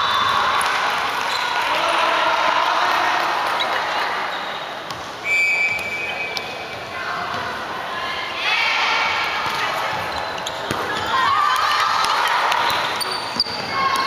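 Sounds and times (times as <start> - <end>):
chatter of players and onlookers: 0.0 - 14.0
referee's whistle blast: 5.2 - 6.5.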